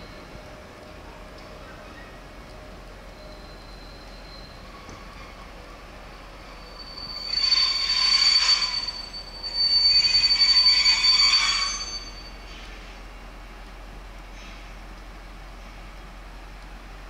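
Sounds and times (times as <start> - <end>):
train high steady squeal: 0.0 - 13.4.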